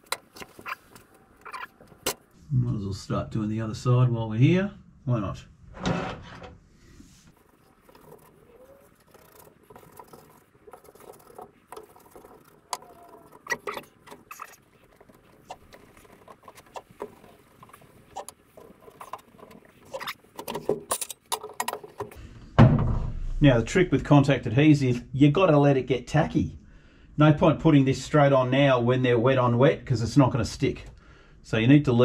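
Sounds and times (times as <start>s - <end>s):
brush scratching and dabbing: 6.9s - 20.4s.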